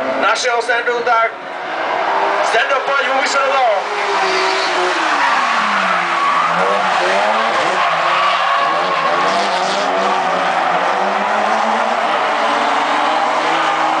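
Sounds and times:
car engines revving: 0.0 - 14.0
tyres screeching: 3.8 - 14.0.

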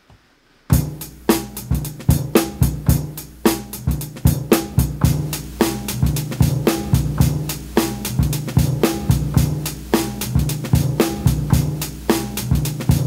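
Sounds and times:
drum break: 0.7 - 13.0.

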